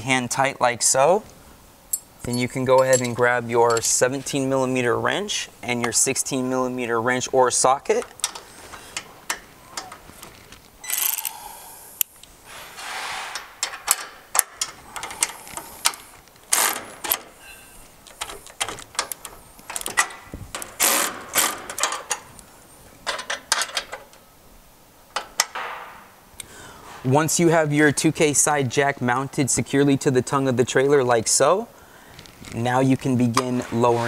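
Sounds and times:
metal tools clinking on steel: 1.9 - 4.1.

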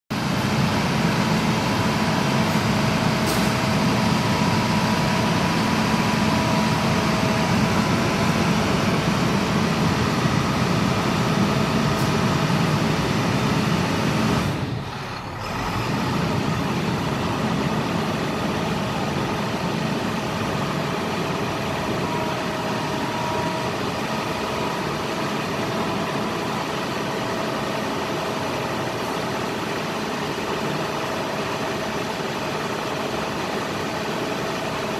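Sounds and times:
diesel engine idling: 0.2 - 34.9.

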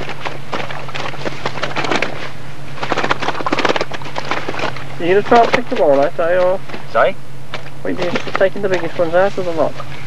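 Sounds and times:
fish thrashing: 0.0 - 6.1.

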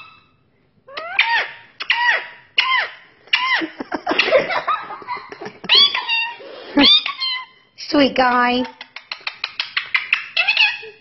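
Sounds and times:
parakeet calling: 0.9 - 3.7, 5.7 - 7.7, 8.6 - 11.0
girl laughing: 3.3 - 7.0.

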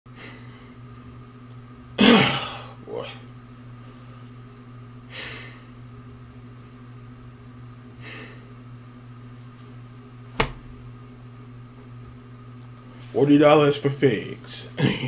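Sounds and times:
low electrical hum: 0.1 - 15.0.

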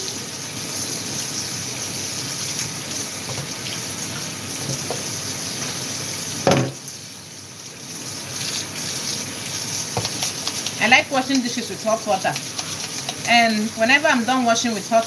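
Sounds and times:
tap water running into metal sink: 0.0 - 15.0
loud clunk: 6.4 - 6.8.

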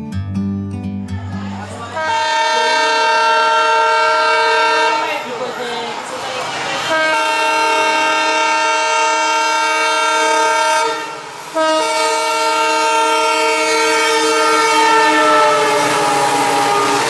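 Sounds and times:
train horn blasts: 1.8 - 5.2, 6.8 - 17.0.

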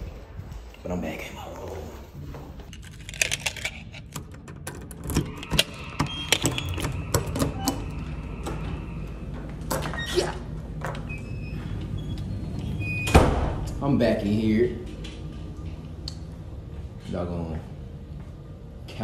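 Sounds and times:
keys clicking in door lock: 2.7 - 7.8.

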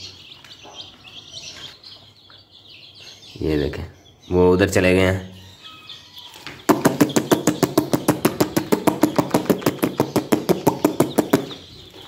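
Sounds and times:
rapid sharp knocks: 6.7 - 11.6.

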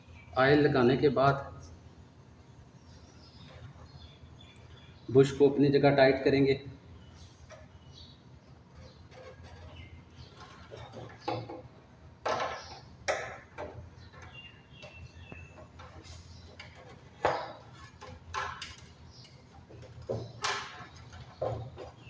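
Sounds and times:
hard plastic parts clicking and knocking: 8.8 - 22.0.

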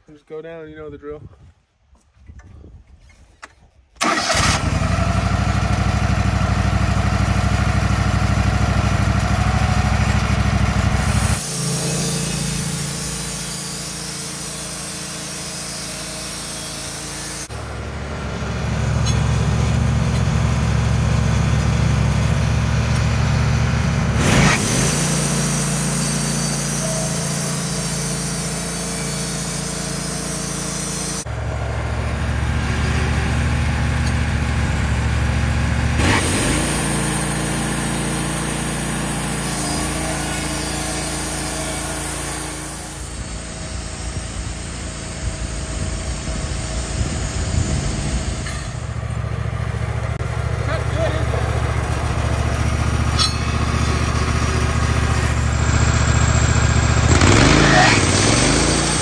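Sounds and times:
petrol engine running: 4.0 - 59.0
high hiss: 11.1 - 17.5.

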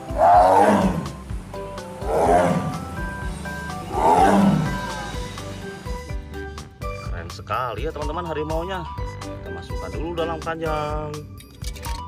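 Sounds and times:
tiger roaring: 0.0 - 5.2
background music with steady beat: 0.0 - 12.0.

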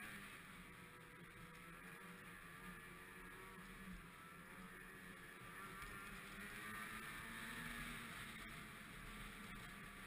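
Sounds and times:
muffled snowmobile engine running: 0.0 - 10.0.

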